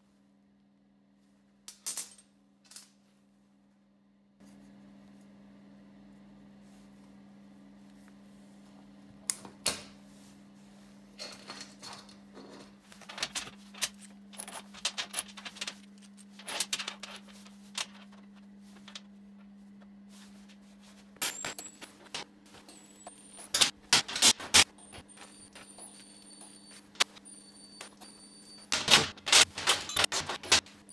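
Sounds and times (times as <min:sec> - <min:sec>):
steady low hum: 0:03.1 - 0:30.9.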